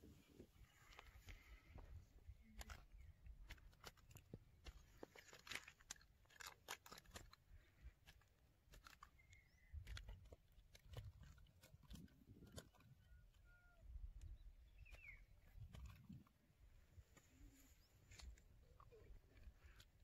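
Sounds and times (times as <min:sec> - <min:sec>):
faint sharp clicks and crackles: 0:00.7 - 0:13.4.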